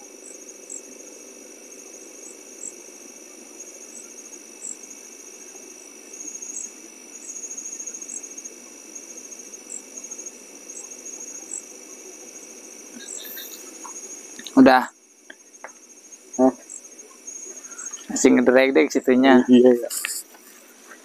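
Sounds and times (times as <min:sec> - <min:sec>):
crickets chirring: 0:00.0 - 0:21.0
steady low hum: 0:00.0 - 0:21.0
higher chirps: 0:12.9 - 0:14.9.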